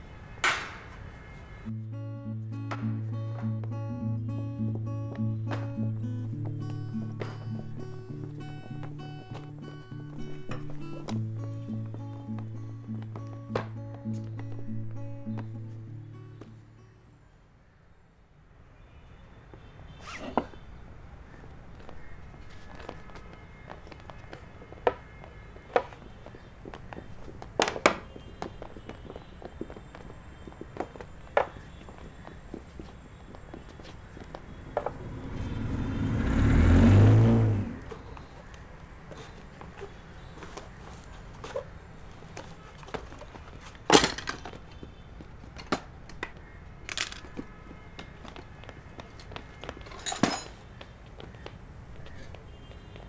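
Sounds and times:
footsteps and knocks: 0:02.4 - 0:16.7, 0:21.7 - 0:35.2, 0:37.8 - 0:53.0
suitcase and objects handled: 0:42.3 - 0:46.3, 0:49.8 - 0:50.6.

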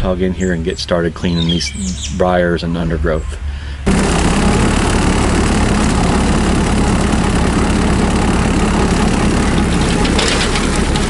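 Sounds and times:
hissy rough engine noise: 0:02.6 - 0:11.0
tractor diesel engine running: 0:03.6 - 0:11.0.

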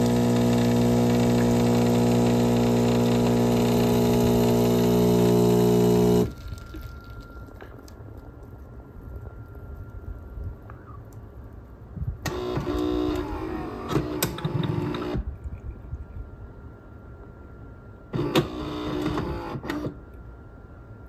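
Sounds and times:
espresso machine mechanism whirring: 0:00.0 - 0:06.9.

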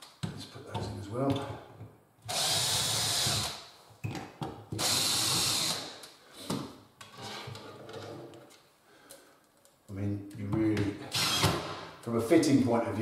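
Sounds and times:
cordless drill driving screws: 0:02.3 - 0:03.6, 0:04.8 - 0:05.9, 0:11.1 - 0:11.8.

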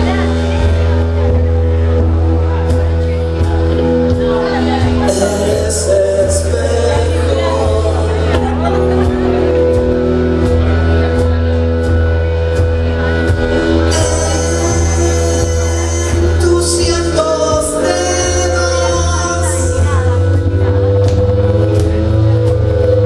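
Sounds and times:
live band playing: 0:00.0 - 0:23.0
woman singing: 0:13.9 - 0:20.8.

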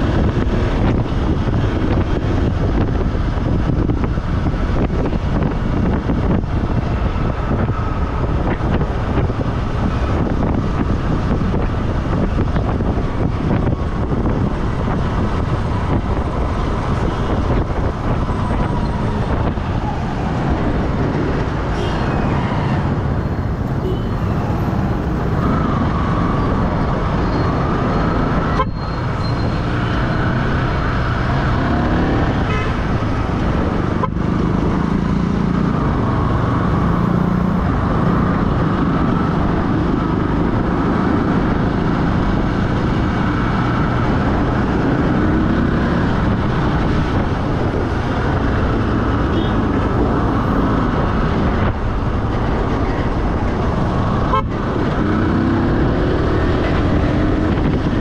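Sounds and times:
vehicle engine and road noise: 0:00.0 - 0:58.0.

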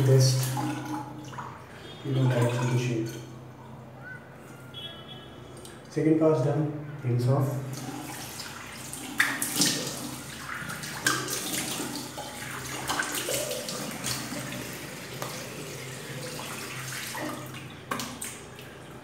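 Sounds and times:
water splashing: 0:00.0 - 0:03.4, 0:07.6 - 0:19.0.

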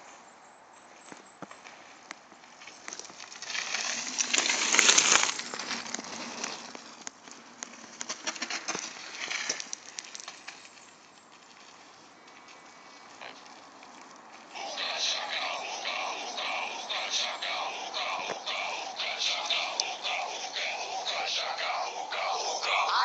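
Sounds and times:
bike tyres rolling on dirt trail: 0:00.9 - 0:14.5.

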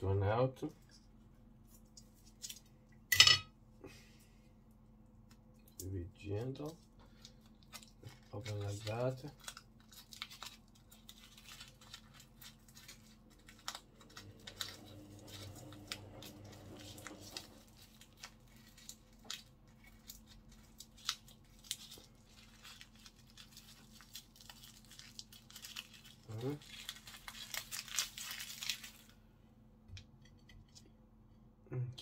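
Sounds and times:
paper crinkling and tearing: 0:06.4 - 0:29.2.

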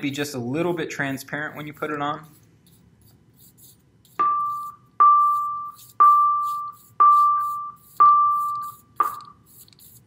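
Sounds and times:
electronic beep: 0:04.2 - 0:09.4.

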